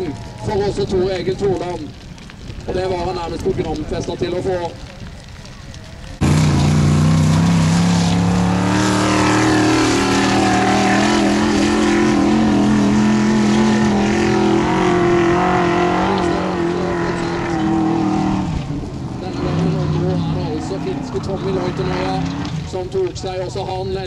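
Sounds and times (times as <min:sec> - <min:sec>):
buggy engine under full load: 0:06.2 - 0:24.0.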